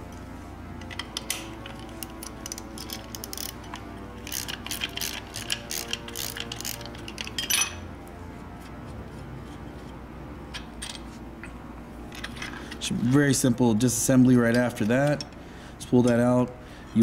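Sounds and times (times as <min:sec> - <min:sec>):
socket ratchet clicking: 0:00.8 - 0:07.7
metal tool clinks: 0:07.4 - 0:07.8.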